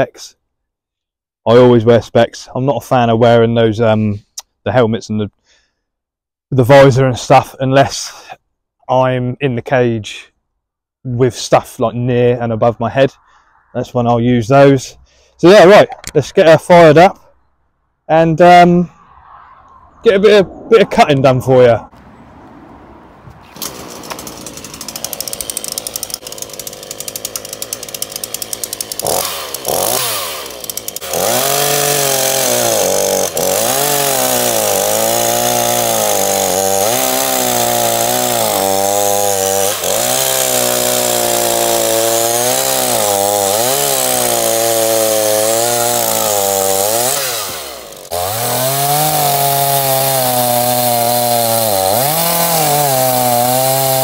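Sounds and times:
chainsaw cutting through log: 0:23.5 - 0:54.0.

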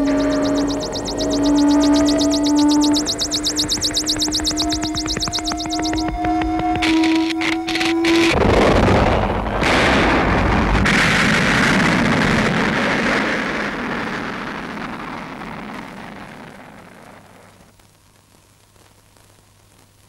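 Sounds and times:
hissing rumble: 0:00.0 - 0:17.6
explosion blast: 0:08.2 - 0:16.8.

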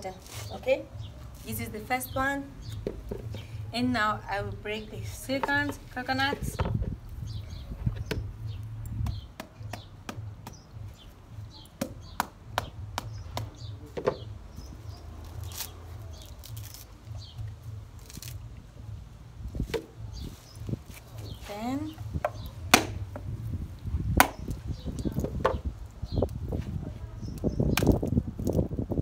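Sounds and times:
stick knocking coconut shell: 0:11.7 - 0:14.3, 0:22.2 - 0:23.3, 0:24.2 - 0:24.6.

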